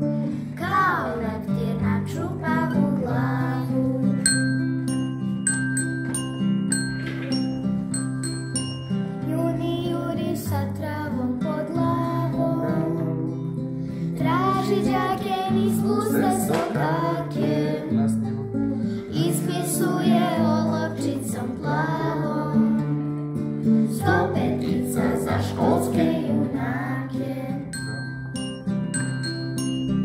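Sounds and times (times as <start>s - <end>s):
strummed acoustic guitar: 0.0s - 30.0s
children singing in unison: 0.6s - 4.2s, 9.7s - 13.3s, 14.2s - 18.2s, 19.1s - 22.9s, 23.9s - 27.7s.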